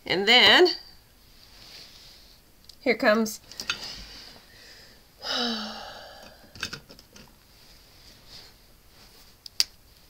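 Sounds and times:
person breathy vocal sound: 0:04.6 - 0:06.7.

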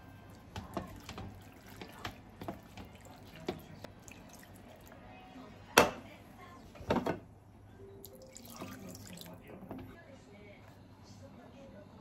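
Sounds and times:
stew liquid sounds: 0:00.0 - 0:05.5, 0:07.9 - 0:09.6.

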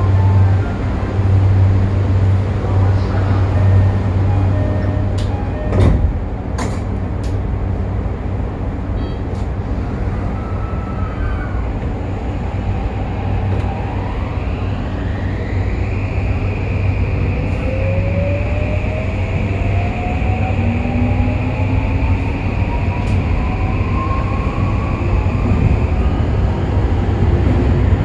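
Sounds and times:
train inverter whine rising: 0:09.8 - 0:28.0.

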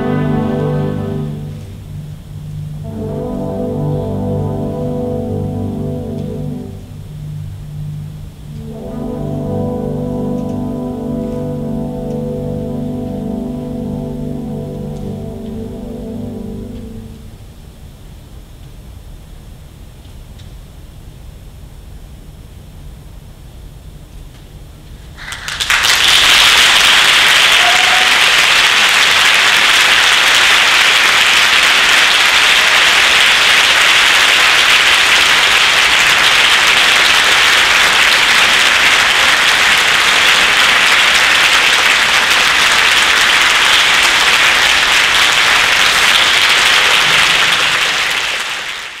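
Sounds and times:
audience applause: 0:25.2 - 0:49.0.

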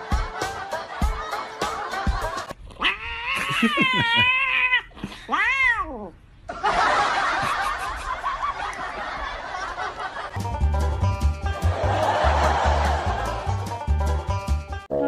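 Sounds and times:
cat meowing: 0:02.8 - 0:06.2.

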